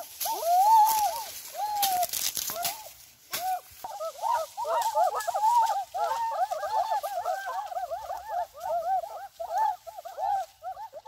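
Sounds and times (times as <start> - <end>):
sugarcane stalks snapping: 0.1 - 3.7
children hooting and whooping: 0.2 - 2.0, 2.6 - 11.0.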